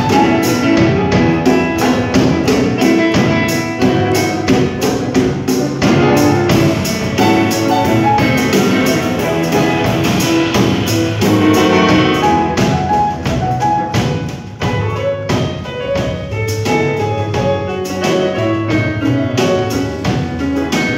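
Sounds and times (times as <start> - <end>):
drum kit with cymbals: 0.0 - 20.9
grand piano: 0.0 - 20.9
keyboard: 0.0 - 20.9
upright bass: 0.0 - 20.9.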